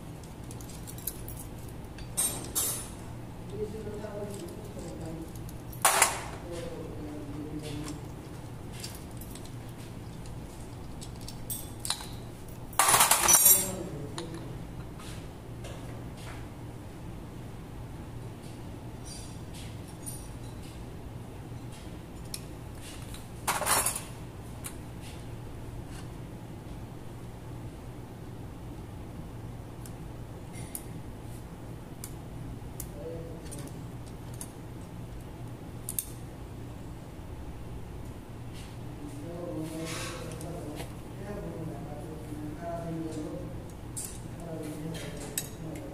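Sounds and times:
steady low hum: 0.0s - 45.9s
metal parts clinking: 8.8s - 12.2s, 12.8s - 14.3s.

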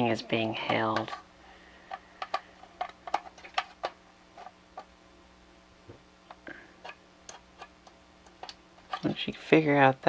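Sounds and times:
plastic parts clicking together: 1.9s - 4.0s.

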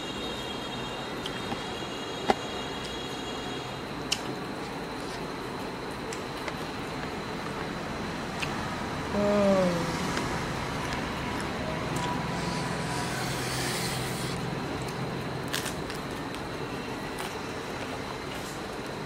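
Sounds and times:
steady background noise: 0.0s - 19.0s
person humming falling pitch: 9.1s - 10.1s.

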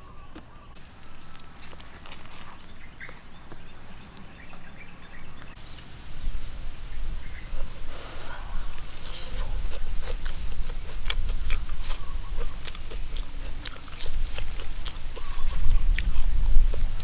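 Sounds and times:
poultry calling: 0.0s - 5.8s, 6.5s - 17.0s
fried chicken breaking crisply: 0.9s - 2.8s.

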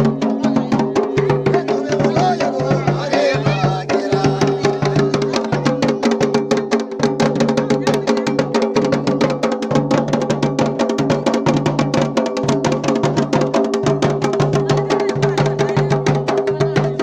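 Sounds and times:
small drum dense beats: 0.0s - 17.0s.

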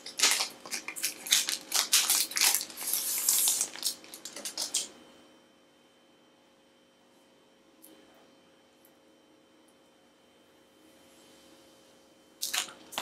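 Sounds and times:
plastic film crinkling: 0.0s - 4.9s, 12.4s - 13.0s.

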